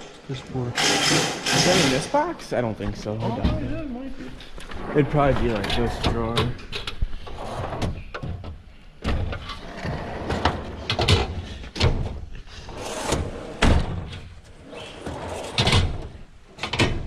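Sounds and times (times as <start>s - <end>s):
drawers sliding and banging shut: 0.8s - 2.1s, 7.3s - 17.0s.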